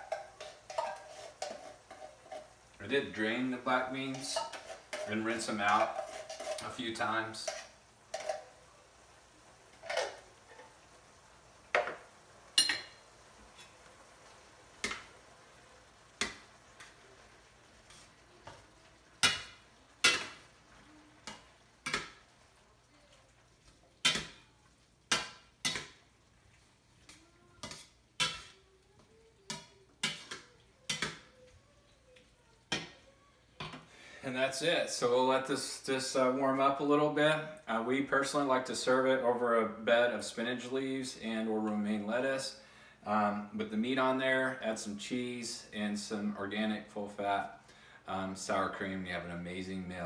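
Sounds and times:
metal spatula scraping skillet: 0.0s - 8.8s, 9.7s - 10.9s, 11.7s - 14.0s, 14.8s - 31.4s.

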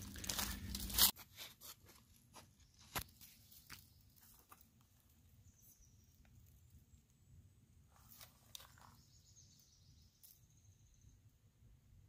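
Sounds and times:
crinkling rustling: 0.0s - 2.0s.

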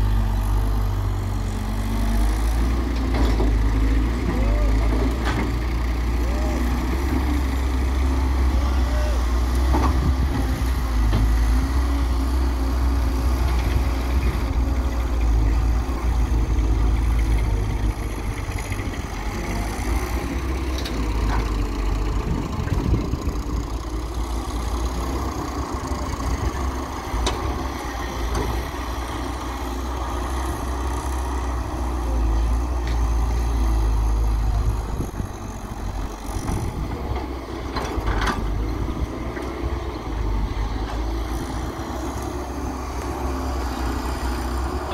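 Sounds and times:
excavator engine working: 0.0s - 44.9s
tractors running: 0.0s - 44.9s.

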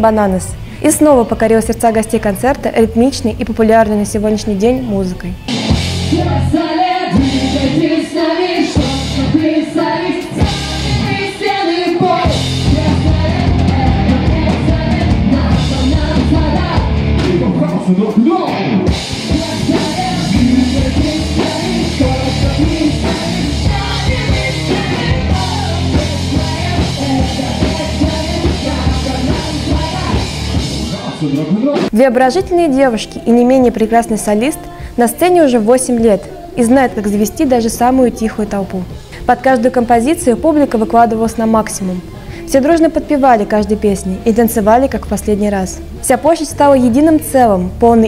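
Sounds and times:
pop-rock band playing: 5.4s - 32.8s
man and women singing: 6.1s - 32.0s, 32.9s - 47.2s.

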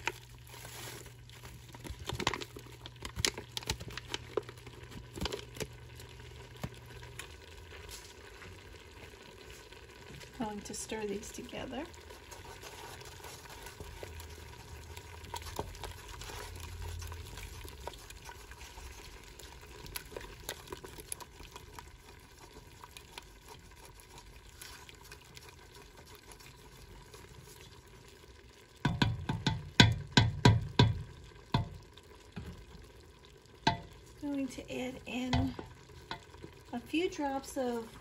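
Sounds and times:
faint sizzle: 0.0s - 38.0s
spoon stirring in a metal pot: 10.7s - 27.9s, 28.8s - 31.8s, 33.6s - 34.0s, 35.1s - 36.6s.

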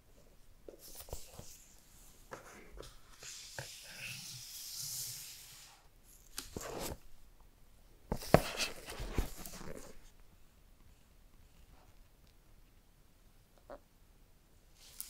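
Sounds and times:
cardboard scrape: 6.5s - 7.0s, 8.1s - 10.0s.

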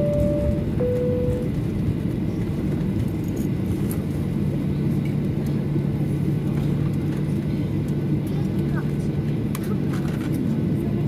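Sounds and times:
steady hum: 0.0s - 2.1s
engine and wheel rumble: 0.0s - 11.0s.

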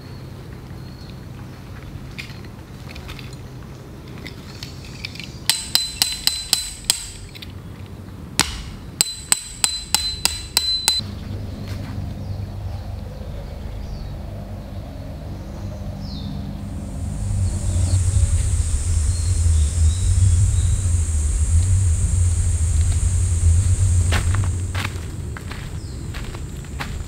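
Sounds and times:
tent peg being hammered: 5.5s - 7.3s, 8.4s - 11.0s.

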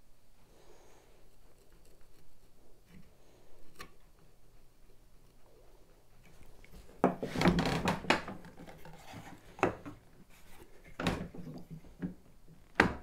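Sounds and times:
chisel scraping wood: 6.9s - 11.7s.

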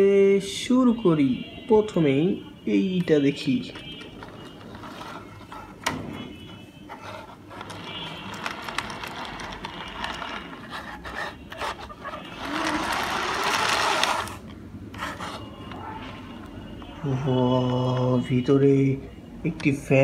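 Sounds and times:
toy wheels rolling: 3.6s - 5.8s, 6.9s - 18.2s
beads rattling in spinning drum: 7.5s - 10.7s, 12.0s - 14.4s.

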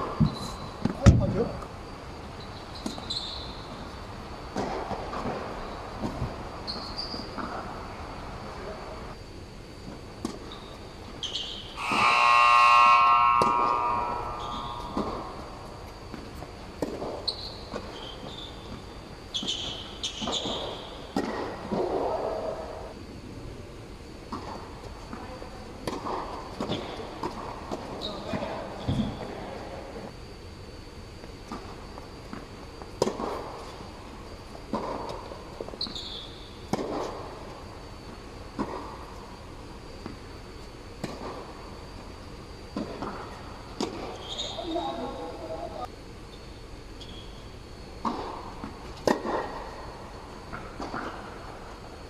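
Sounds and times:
shoes squeaking on court: 0.1s - 1.2s, 2.4s - 4.0s, 4.9s - 7.7s, 10.3s - 11.9s, 14.3s - 21.5s, 26.5s - 29.4s, 31.5s - 36.5s, 44.0s - 45.5s, 46.3s - 47.5s
high squeak: 11.2s - 15.8s, 44.2s - 45.1s
rackets striking tennis ball: 13.4s - 22.2s, 24.3s - 29.2s, 32.3s - 33.8s, 34.6s - 37.4s, 42.7s - 44.5s, 48.0s - 49.8s, 50.4s - 51.5s.

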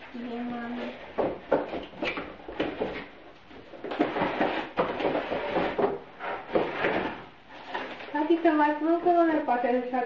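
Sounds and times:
plastic crinkling and rustling: 0.0s - 9.6s.

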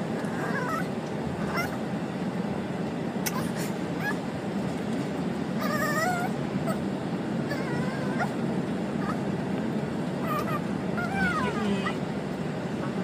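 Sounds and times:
small dog whimpering: 0.2s - 1.8s, 3.3s - 4.2s, 5.6s - 6.8s, 7.5s - 8.4s, 9.0s - 9.3s, 10.2s - 12.0s, 12.8s - 13.0s
small dog yipping: 0.3s - 1.8s, 3.3s - 4.2s, 5.6s - 6.8s, 7.5s - 8.4s, 9.0s - 9.2s, 10.2s - 12.0s.

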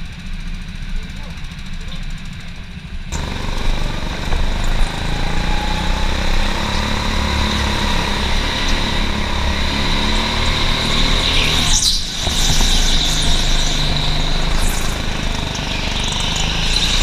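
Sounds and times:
go-kart engine running: 0.0s - 17.0s
kart rolling on track: 0.0s - 17.0s.

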